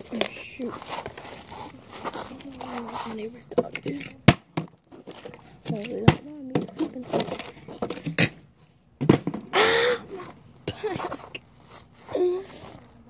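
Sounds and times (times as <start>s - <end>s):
breathy vocal cry: 9.5s - 10.2s.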